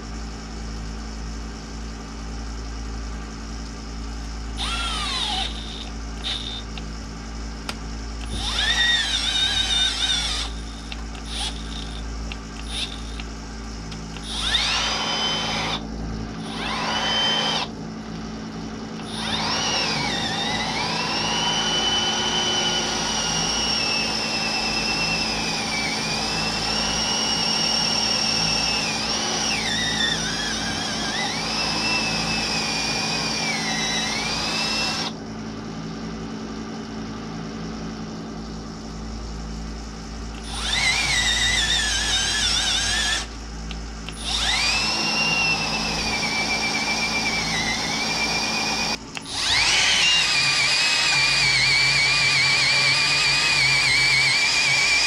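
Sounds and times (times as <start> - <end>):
electric drill boring into wood: 4.6 - 6.8, 8.2 - 13.3, 14.2 - 15.8, 16.4 - 17.7, 19.0 - 35.2, 40.4 - 43.3, 44.1 - 55.0.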